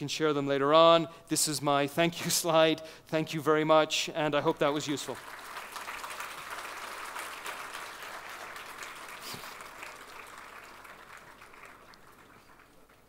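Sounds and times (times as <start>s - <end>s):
large audience applauding: 4.7s - 13.0s.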